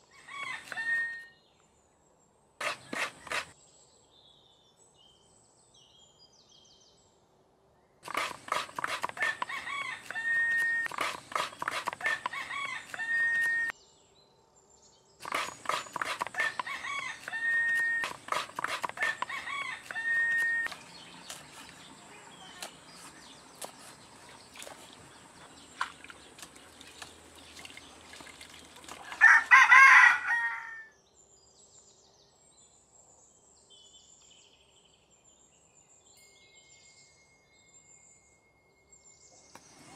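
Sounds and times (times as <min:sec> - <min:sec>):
roosters crowing: 0:00.2 - 0:01.2, 0:09.0 - 0:13.7, 0:15.7 - 0:20.7, 0:29.0 - 0:30.9
knife chopping on wooden block: 0:02.6 - 0:03.5, 0:08.1 - 0:13.7, 0:15.2 - 0:21.8.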